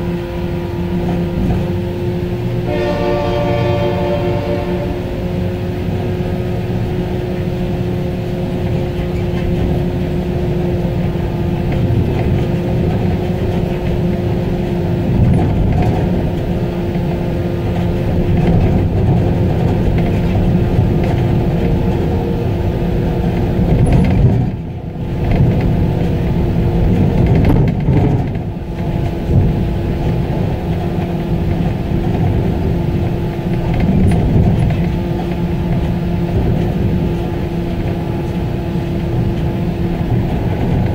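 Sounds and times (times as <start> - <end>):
truck running gear and road rumble: 0.0 - 40.9.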